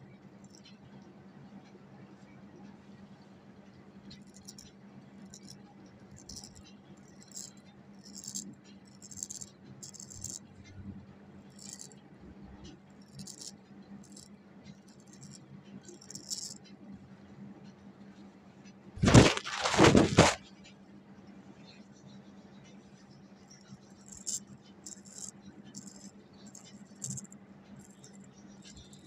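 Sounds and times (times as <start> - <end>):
low steady hum: 0.0 - 29.0
razor scraping hair: 13.0 - 13.5, 24.1 - 28.2.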